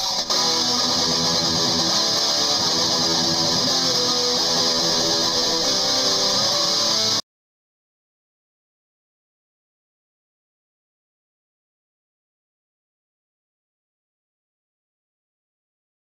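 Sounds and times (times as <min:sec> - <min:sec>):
guitar-led instrumental music: 0:00.0 - 0:07.2.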